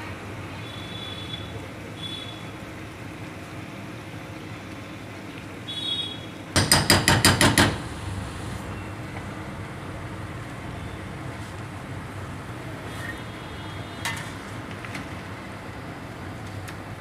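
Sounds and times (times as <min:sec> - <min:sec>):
steady low hiss: 0:07.8 - 0:12.8.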